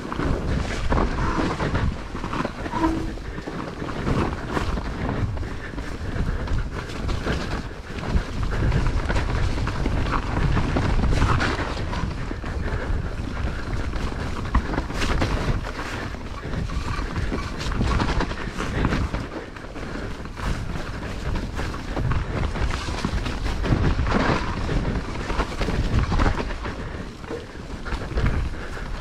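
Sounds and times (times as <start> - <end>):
bike rattling and knocking: 0.0 - 29.0
bike tyres rumbling: 0.0 - 29.0
wind buffeting microphone: 0.0 - 29.0.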